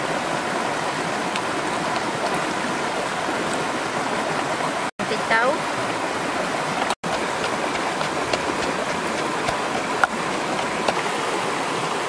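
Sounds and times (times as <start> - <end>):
flowing stream: 0.0 - 12.0
wooden pestle pounding in mortar: 7.0 - 11.0.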